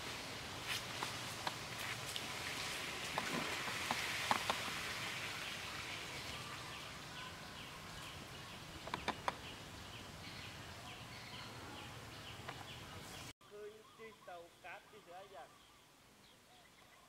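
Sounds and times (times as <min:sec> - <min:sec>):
sharp clicks: 0:08.8 - 0:09.4.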